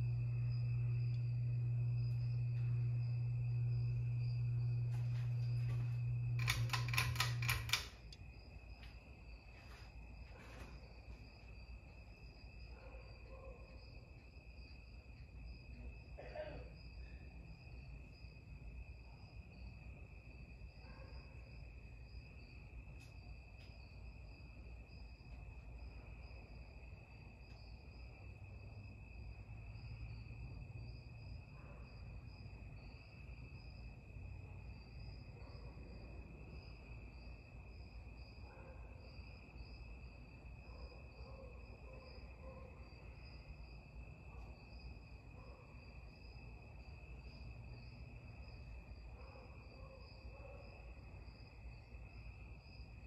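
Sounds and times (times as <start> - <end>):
ceiling fan humming: 0.0 - 18.2.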